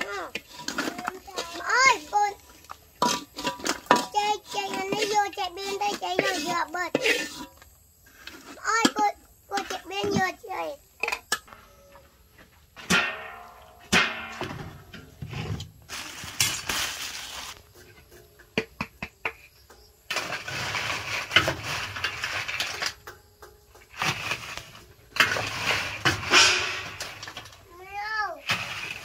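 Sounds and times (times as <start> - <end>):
chips crackling into plastic bag: 15.9 - 17.6.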